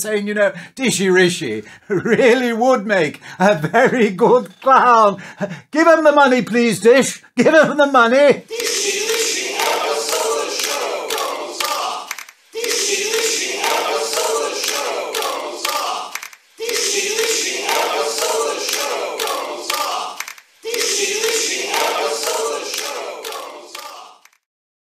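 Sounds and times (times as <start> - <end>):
crowd chanting in unison: 8.4 - 24.4.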